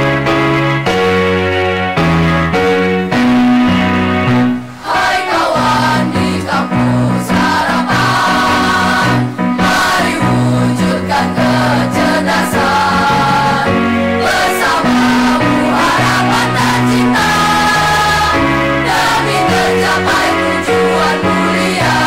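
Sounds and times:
children's choir singing: 0:04.8 - 0:22.0.

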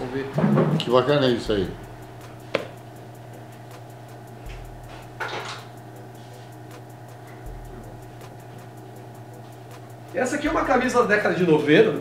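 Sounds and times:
electrical hum: 0:00.0 - 0:12.0.

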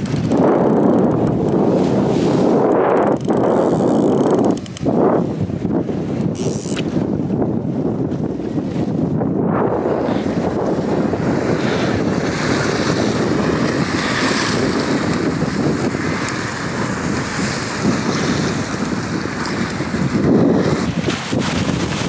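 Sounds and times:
sea waves washing: 0:00.0 - 0:22.0
wind buffeting microphone: 0:00.0 - 0:22.0.

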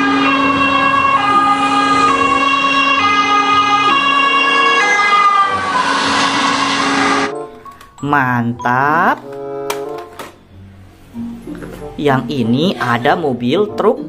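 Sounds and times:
ambulance two-tone siren: 0:00.0 - 0:08.0
road noise: 0:00.0 - 0:08.2.

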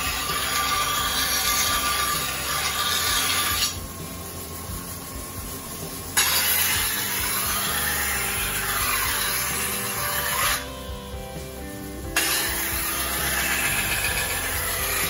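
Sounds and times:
knife grinding on stone wheel: 0:00.0 - 0:04.3, 0:06.1 - 0:10.8, 0:12.0 - 0:15.0
grinding wheel spinning: 0:00.0 - 0:15.0.

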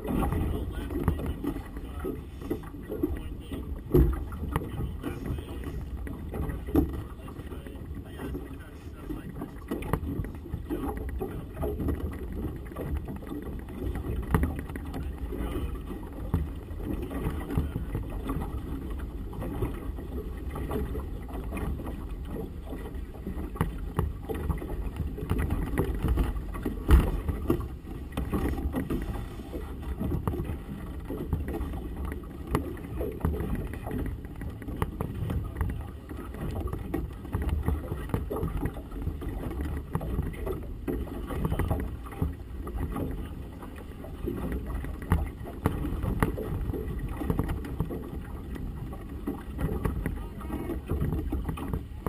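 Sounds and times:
water slapping boat hull: 0:00.0 - 0:52.0
sharp thump: 0:26.9 - 0:27.3.

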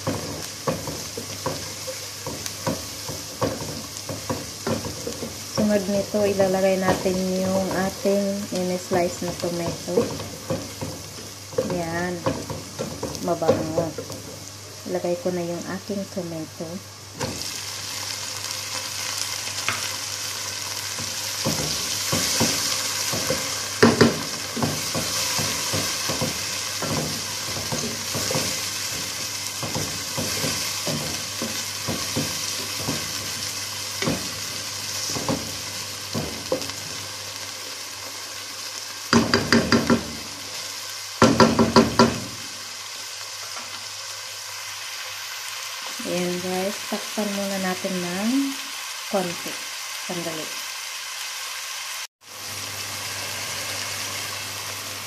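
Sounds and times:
tomatoes sizzling in oil: 0:00.0 - 0:55.0
spoon tapping on pot: 0:39.1 - 0:40.1.

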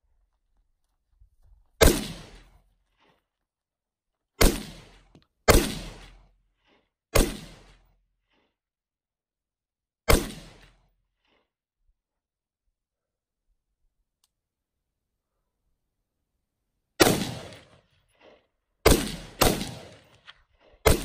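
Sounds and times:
rifle shots: 0:01.8 - 0:02.5, 0:04.4 - 0:06.2, 0:07.2 - 0:07.8, 0:10.1 - 0:10.8, 0:17.0 - 0:17.8, 0:18.8 - 0:21.0.

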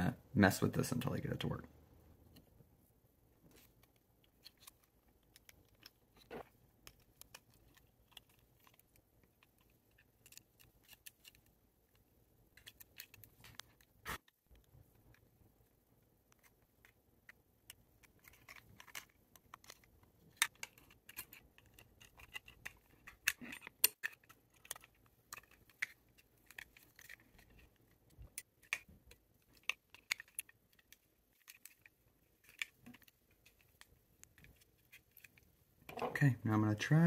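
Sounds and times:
plastic parts clicking: 0:03.5 - 0:15.2, 0:16.3 - 0:36.2.

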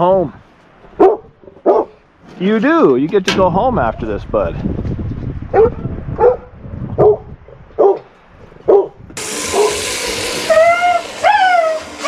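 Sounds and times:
dog barking: 0:01.0 - 0:02.0, 0:05.5 - 0:08.1, 0:08.7 - 0:09.8
water spraying from a hose: 0:09.2 - 0:12.0
dog whining: 0:10.5 - 0:12.0.

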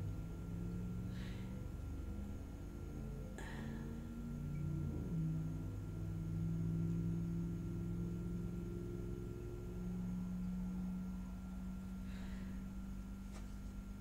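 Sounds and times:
ambient drone music: 0:00.0 - 0:13.2.

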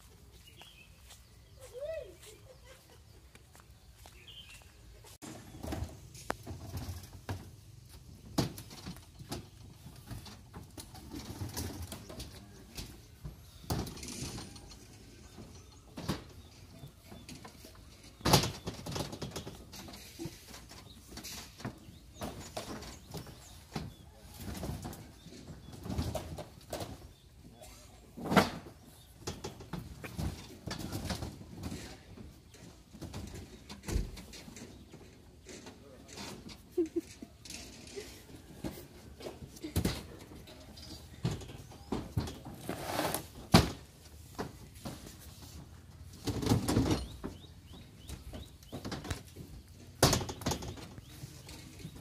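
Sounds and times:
cases scraping: 0:28.1 - 0:52.0.

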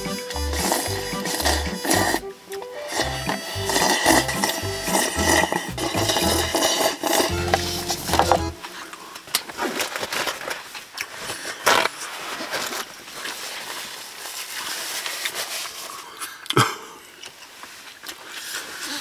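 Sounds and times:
rustle of handling food: 0:08.7 - 0:16.4, 0:17.2 - 0:19.0.

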